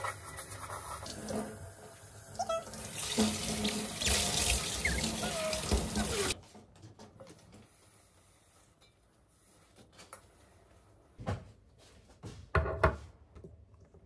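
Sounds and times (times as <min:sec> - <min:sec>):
steel bowl squeaking: 0:00.0 - 0:06.4
tap water running into sink: 0:02.6 - 0:06.4.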